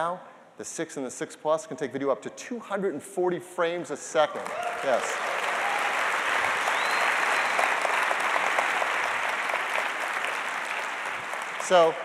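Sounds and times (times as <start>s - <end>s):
large audience applauding: 4.4s - 12.0s.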